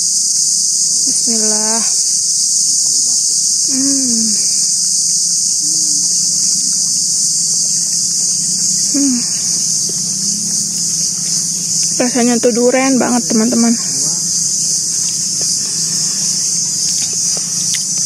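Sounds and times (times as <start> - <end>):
insects droning: 0.0 - 18.0
person humming briefly: 8.9 - 9.5.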